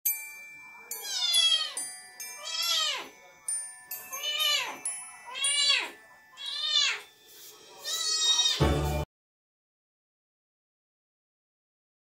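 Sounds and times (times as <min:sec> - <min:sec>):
kitten meowing: 0:01.0 - 0:01.8, 0:02.4 - 0:03.1, 0:04.2 - 0:07.0, 0:07.8 - 0:08.6.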